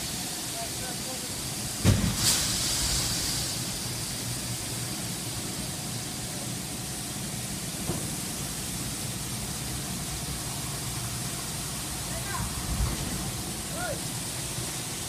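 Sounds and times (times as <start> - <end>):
factory machinery hum: 0.0 - 15.0.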